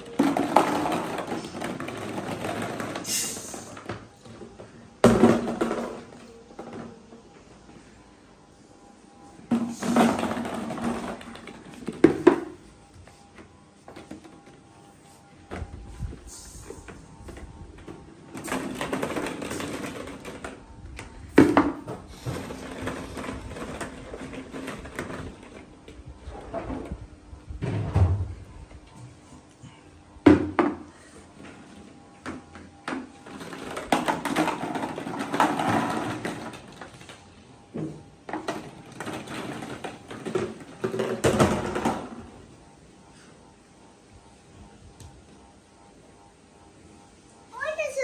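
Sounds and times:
plastic balls clattering: 0:00.0 - 0:04.2, 0:09.5 - 0:12.6, 0:16.8 - 0:25.8, 0:32.8 - 0:37.4, 0:38.2 - 0:42.4.

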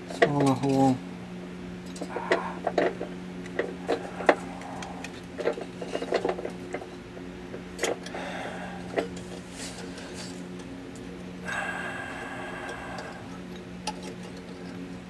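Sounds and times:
steady low hum: 0:00.0 - 0:15.0
metallic clicks and rattles: 0:13.0 - 0:14.8.

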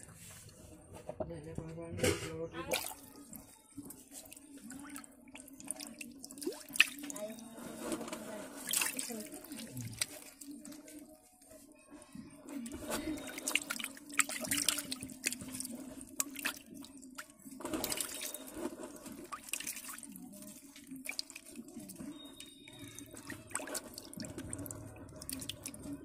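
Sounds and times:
wet splashes and drips: 0:02.7 - 0:07.3, 0:08.6 - 0:11.1, 0:12.8 - 0:26.0
fish thrashing in water: 0:02.7 - 0:11.0, 0:12.8 - 0:26.0.

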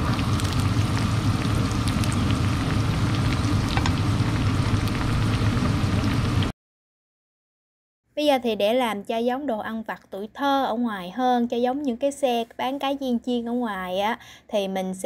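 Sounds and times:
food sizzling in hot oil: 0:00.0 - 0:06.5.

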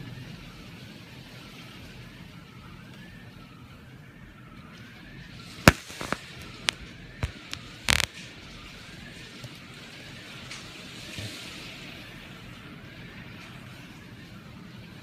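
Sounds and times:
sharp taps and cracks: 0:05.7 - 0:08.1.

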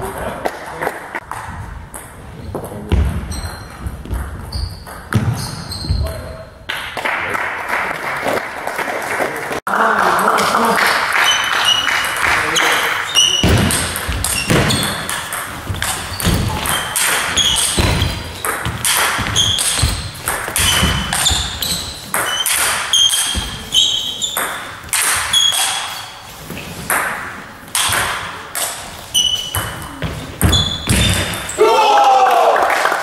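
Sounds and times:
table tennis ball hitting bats: 0:10.4 - 0:31.6
table tennis ball bouncing on table: 0:13.2 - 0:23.6, 0:24.3 - 0:25.8, 0:26.9 - 0:28.8.

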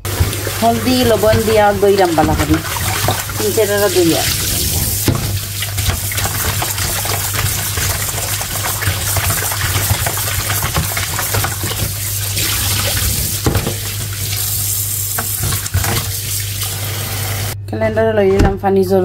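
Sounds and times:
tap running into bowl: 0:00.0 - 0:14.2
hands swishing fish in water: 0:00.0 - 0:14.7.

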